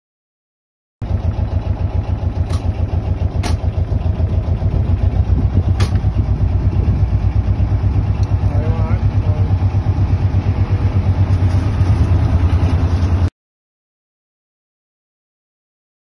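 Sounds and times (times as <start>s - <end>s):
diesel engine chugging: 1.0s - 13.3s.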